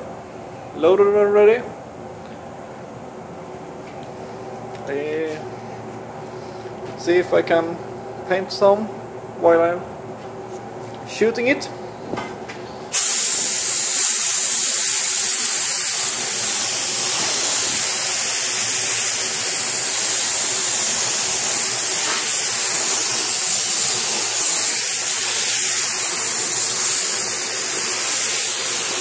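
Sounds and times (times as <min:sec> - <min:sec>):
spray gun hissing: 0:12.9 - 0:29.0.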